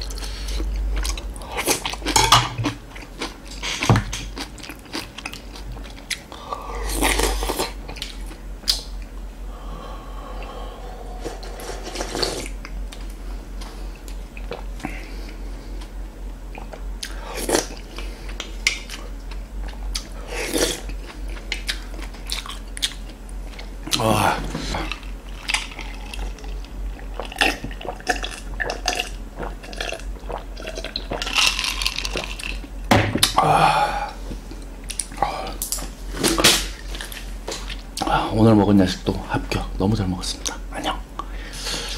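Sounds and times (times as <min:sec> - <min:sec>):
chewing: 0:00.0 - 0:06.3, 0:16.5 - 0:24.0, 0:24.7 - 0:32.7
gulping a drink: 0:27.0 - 0:32.5.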